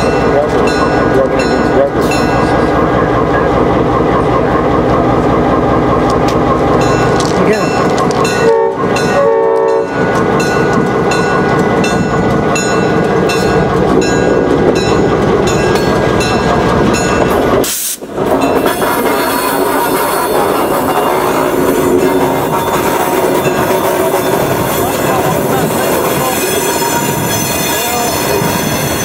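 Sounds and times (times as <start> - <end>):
diesel locomotive rolling past: 0.0 - 29.0
train wheels on rails: 0.0 - 29.0
train air horn: 8.4 - 9.9.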